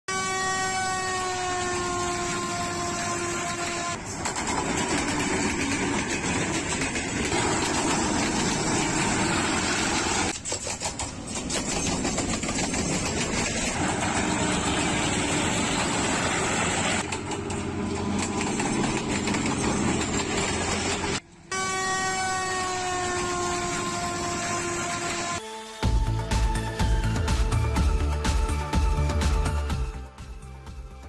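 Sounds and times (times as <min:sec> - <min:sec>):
diesel locomotive engines: 0:00.1 - 0:30.8
wheels on rail: 0:00.9 - 0:25.4.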